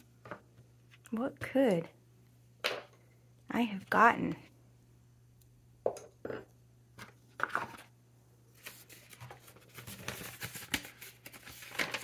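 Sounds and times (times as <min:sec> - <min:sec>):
paper packaging rustling: 0:08.5 - 0:12.0.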